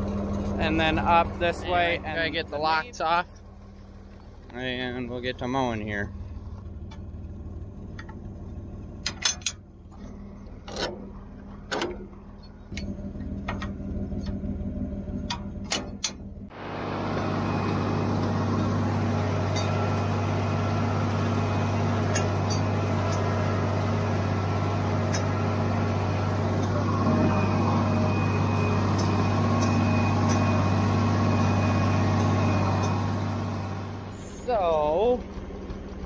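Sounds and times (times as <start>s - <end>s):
tractor and mower mowing grass: 0.0s - 36.0s
tractor idling: 0.0s - 36.0s
metal latches clanking: 9.0s - 12.9s, 15.3s - 16.2s, 21.8s - 23.5s, 24.6s - 25.7s.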